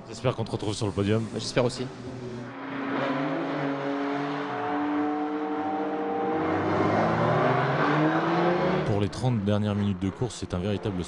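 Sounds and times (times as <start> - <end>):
car accelerating: 1.2 - 11.0
racing car engines running: 1.2 - 11.0.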